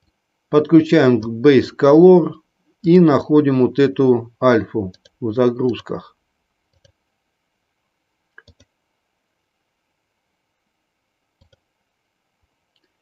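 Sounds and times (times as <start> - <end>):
computer mouse clicking: 6.7 - 7.0, 8.4 - 8.7, 11.4 - 11.7.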